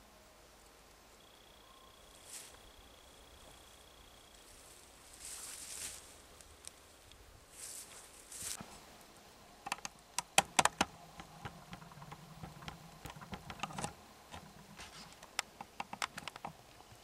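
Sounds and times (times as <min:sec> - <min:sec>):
campfire crackling and popping: 0:09.6 - 0:17.0.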